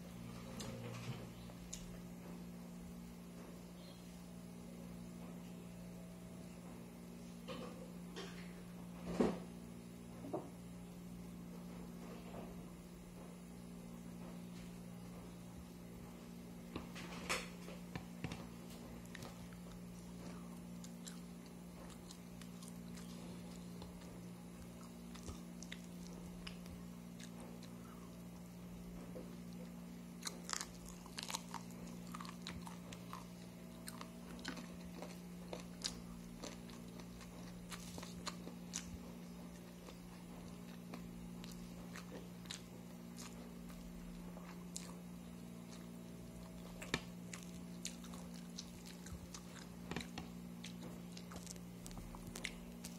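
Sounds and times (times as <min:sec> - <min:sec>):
person chewing: 0:18.0 - 0:52.9.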